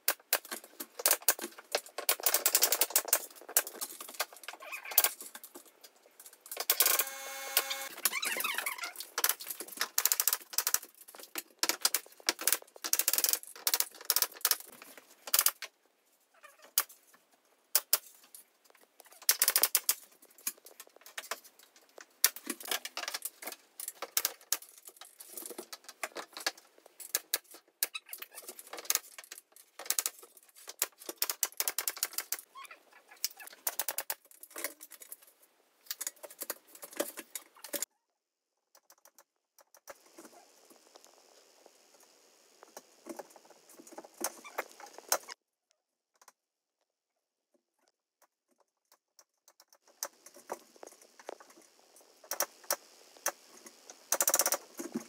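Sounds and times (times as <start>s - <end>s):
cordless drill whirring: 6.8s - 7.9s
clicks taps and rattles: 38.7s - 40.3s.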